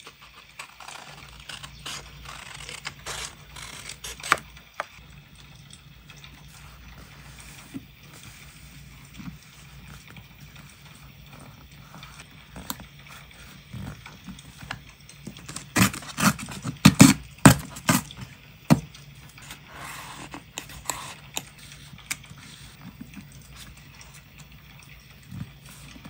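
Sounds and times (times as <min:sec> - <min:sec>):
paper rustling: 0:00.0 - 0:04.9, 0:06.2 - 0:24.5
paper tearing against ruler: 0:00.4 - 0:04.5, 0:15.5 - 0:18.1.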